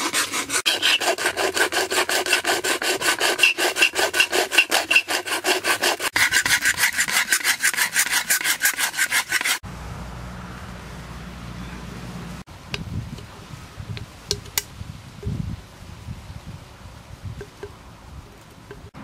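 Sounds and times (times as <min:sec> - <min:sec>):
can scraping on whetstone: 0:00.0 - 0:09.6.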